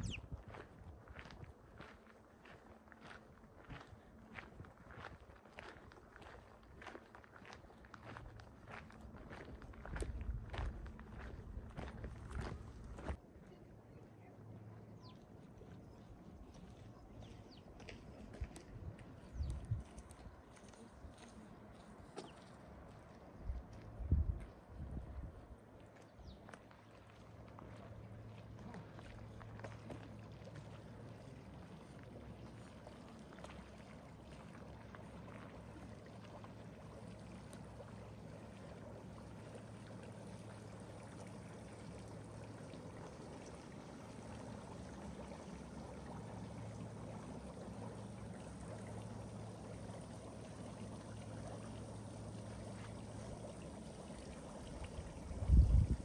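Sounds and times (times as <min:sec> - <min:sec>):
stream flowing over stones: 0:25.6 - 0:56.0.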